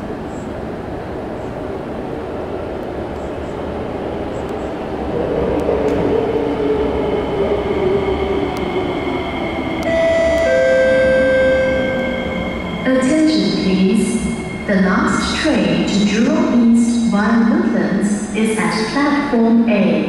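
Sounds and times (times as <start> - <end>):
metro train rumble: 0.0 - 20.0
electronic chime: 9.9 - 12.7.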